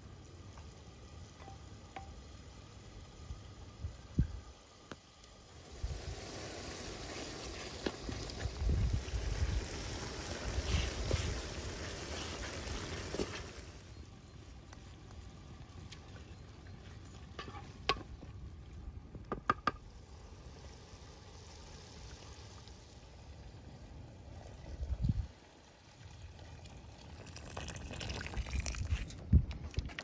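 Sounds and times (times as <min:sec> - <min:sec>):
stew simmering: 0:00.0 - 0:30.0
water pouring from kettle: 0:25.6 - 0:29.2.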